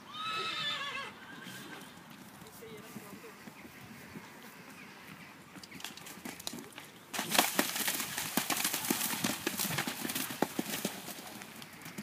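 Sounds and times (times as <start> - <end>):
horse hoofbeats cantering: 1.8 - 12.0
hooves splashing through water: 6.4 - 12.0.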